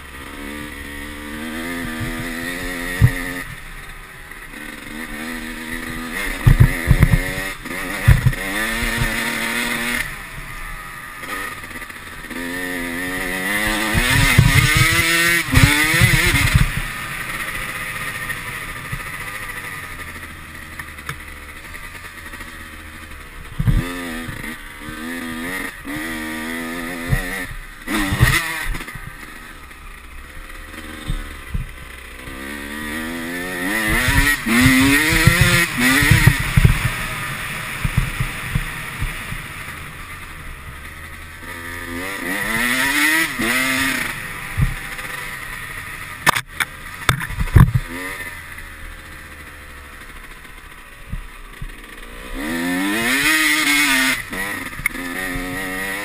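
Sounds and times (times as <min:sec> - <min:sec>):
dirt bike engine revving: 0:00.0 - 0:56.0
sharp thumps and knocks: 0:01.8 - 0:03.5, 0:05.9 - 0:09.2, 0:13.9 - 0:16.9, 0:23.6 - 0:24.5, 0:27.0 - 0:29.1, 0:31.0 - 0:31.8, 0:33.8 - 0:37.0, 0:37.8 - 0:39.5, 0:46.2 - 0:48.0.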